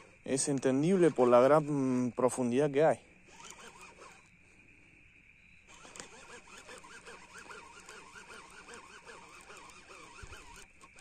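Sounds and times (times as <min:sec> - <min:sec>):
fishing reel gears whirring: 0:03.3 - 0:04.4, 0:05.7 - 0:11.0.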